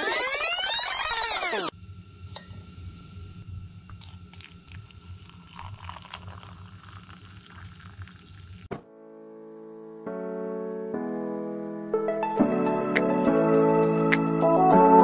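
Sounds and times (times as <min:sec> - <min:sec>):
steady low hum: 0:01.7 - 0:07.2
water pouring into mug: 0:03.9 - 0:08.7.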